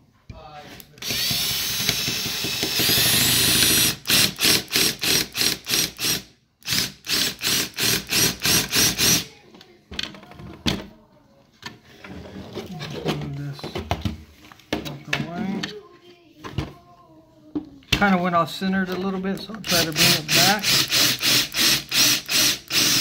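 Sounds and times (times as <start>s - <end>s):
cordless drill drilling metal: 1.0s - 9.3s, 19.6s - 23.0s.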